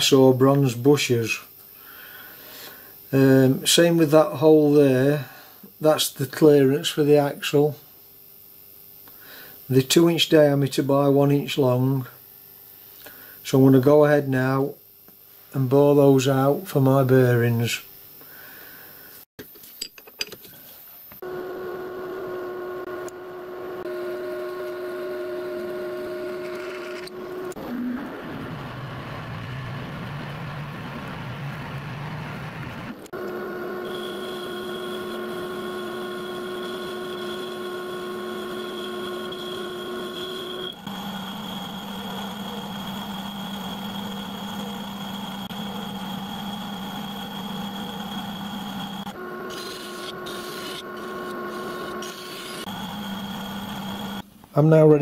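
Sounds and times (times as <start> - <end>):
metal lathe cutting metal: 33.2 - 54.2.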